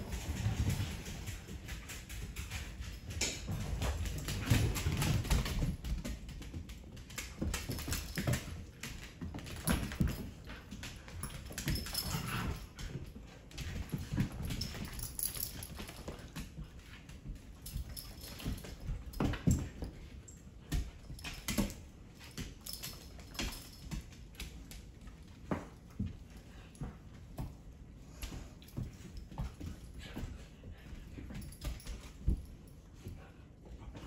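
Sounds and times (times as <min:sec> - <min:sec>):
dogs thumping while wrestling: 0:00.0 - 0:34.0.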